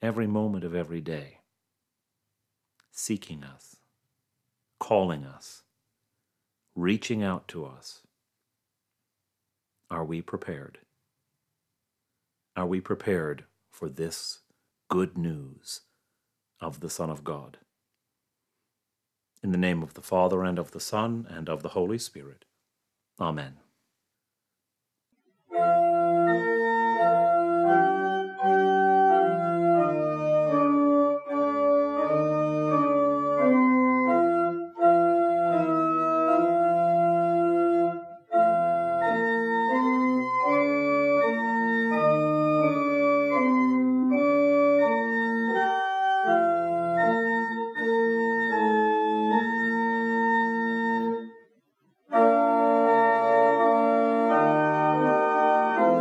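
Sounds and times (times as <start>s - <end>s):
organ playing chords: 25.4s - 51.4s, 52.0s - 56.0s.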